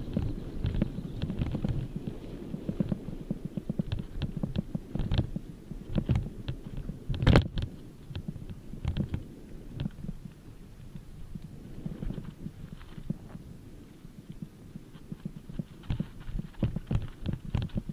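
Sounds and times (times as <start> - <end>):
mountain bike rattling over dirt: 0.0 - 17.9.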